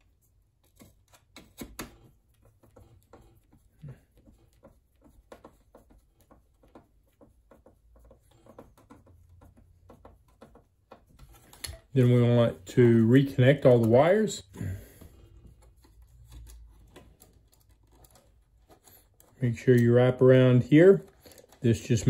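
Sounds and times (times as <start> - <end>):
fingers tapping plastic parts: 0.6 - 11.9, 15.0 - 20.1
screwdriver clicking and scraping: 15.5 - 20.0.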